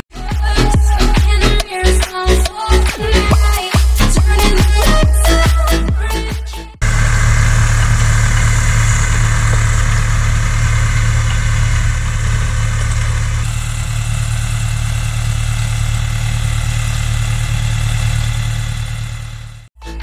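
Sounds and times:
tractor diesel engine running: 0:02.7 - 0:05.8, 0:06.8 - 0:19.7.

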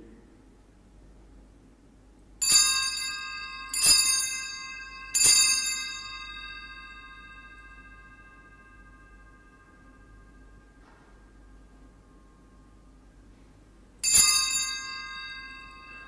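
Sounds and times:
altar bells ringing: 0:02.4 - 0:12.8, 0:14.0 - 0:16.0.

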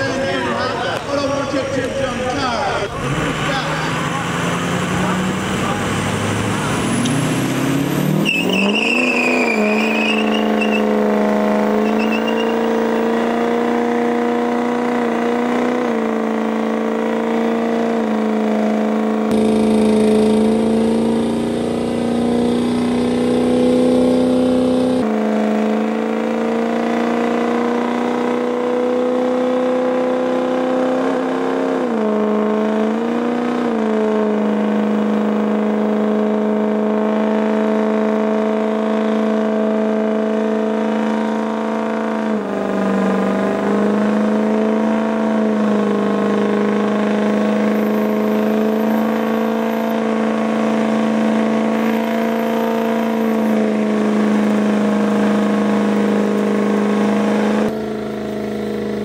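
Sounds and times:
diesel engine revving: 0:00.0 - 0:59.0
tyre squeal: 0:06.8 - 0:11.0, 0:11.7 - 0:13.2.

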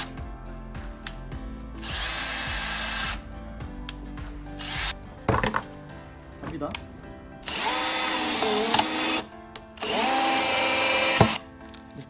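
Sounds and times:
power drill whirring: 0:01.8 - 0:03.2, 0:04.6 - 0:05.0, 0:07.4 - 0:11.4.

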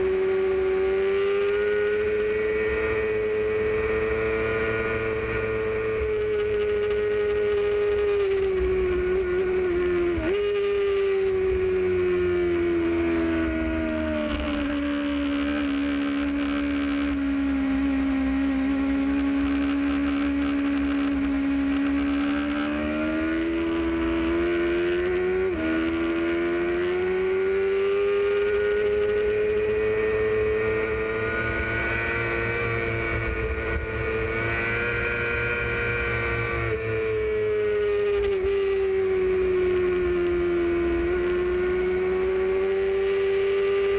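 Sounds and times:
motorcycle engine revving: 0:00.0 - 0:43.9
road rush: 0:00.0 - 0:43.9
wind: 0:00.0 - 0:43.9.

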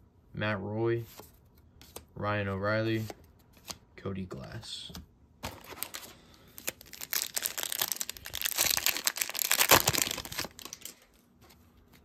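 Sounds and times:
foil wrapper crackling: 0:05.5 - 0:11.2.

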